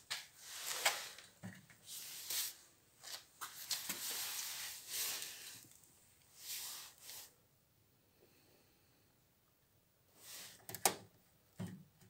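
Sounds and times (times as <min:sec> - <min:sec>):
rustling and crackling: 0:00.0 - 0:07.3.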